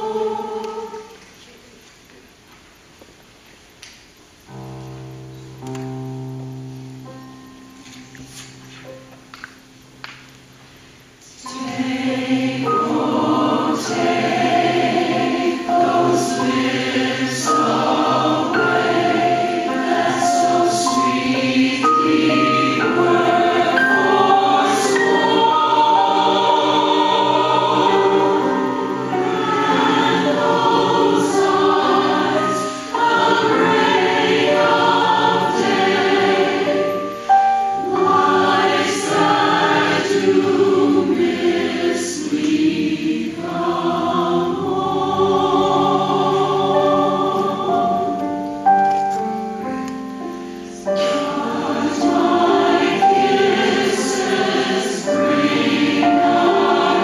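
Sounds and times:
mixed choir singing: 0.0s - 1.3s, 11.3s - 48.8s, 50.8s - 57.0s.

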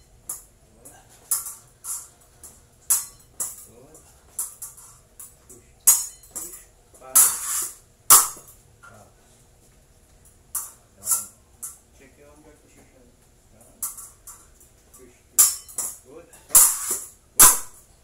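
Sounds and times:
steel blades clashing: 2.9s - 3.7s, 5.9s - 6.6s, 7.2s - 8.4s, 10.6s - 11.4s, 15.4s - 17.8s
blade scraping along blade: 7.2s - 7.8s.

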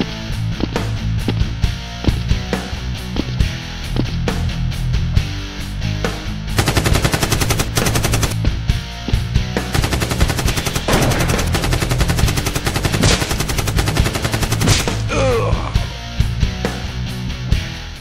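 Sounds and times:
rock music: 0.0s - 18.0s
automatic gunfire sound effects: 6.6s - 8.4s, 9.7s - 15.1s.

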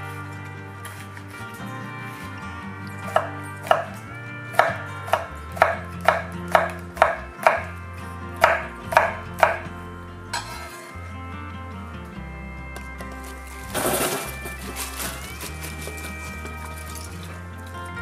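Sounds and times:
knife striking cutting board: 8.4s - 9.6s.

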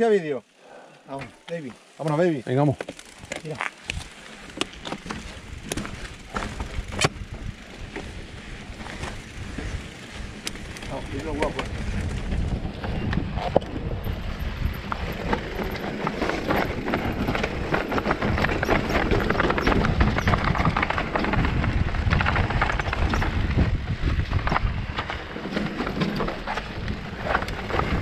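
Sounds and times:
bike clattering over stones: 1.2s - 28.0s
rumbling tyre noise: 2.4s - 28.0s.

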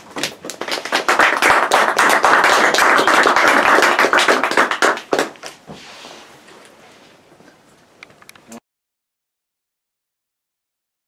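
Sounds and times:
small group applauding: 0.0s - 5.7s.

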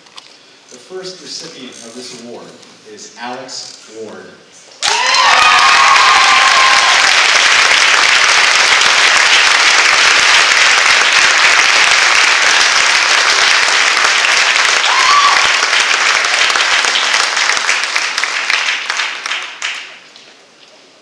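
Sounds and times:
audience applauding: 4.8s - 20.2s.

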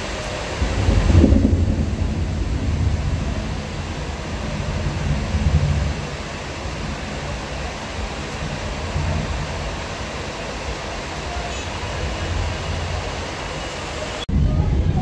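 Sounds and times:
heavy rain: 0.0s - 15.0s
deep low rumble: 0.6s - 6.1s.

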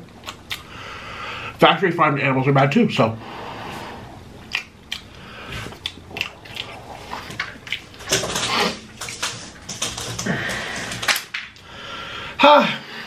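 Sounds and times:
wet chewing and lip-smacking: 0.0s - 0.7s, 4.4s - 11.6s.

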